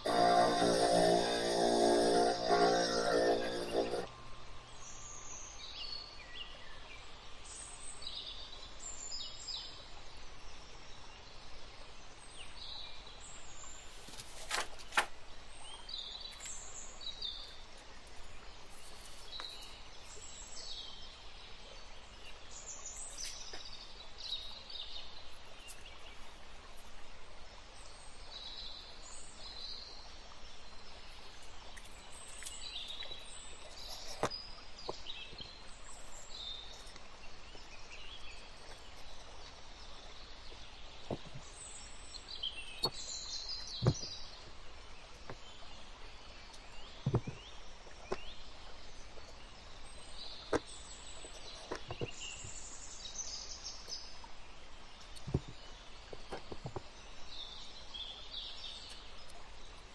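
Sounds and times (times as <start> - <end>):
faint steady hiss: 0.0 - 59.9
small birds chirping: 12.4 - 59.9.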